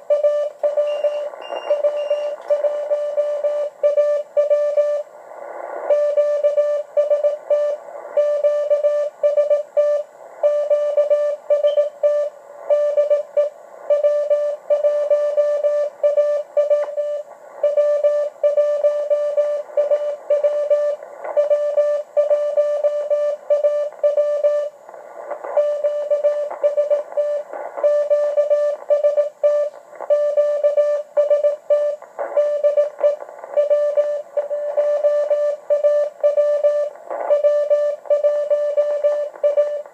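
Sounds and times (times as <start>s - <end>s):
faint receiver hiss: 0.0s - 3.0s
morse code tone: 0.1s - 5.0s, 5.9s - 24.7s, 25.6s - 39.9s.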